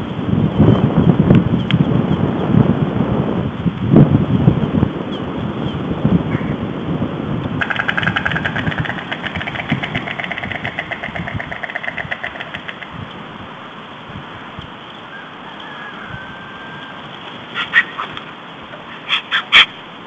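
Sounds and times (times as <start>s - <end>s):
stork bill clattering: 7.6s - 13.0s.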